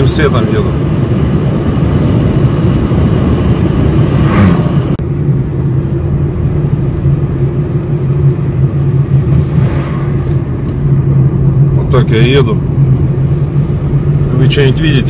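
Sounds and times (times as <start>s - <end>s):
car engine and tyre drone: 0.0s - 15.0s
vehicle passing with a rush: 0.8s - 5.2s, 8.4s - 15.0s.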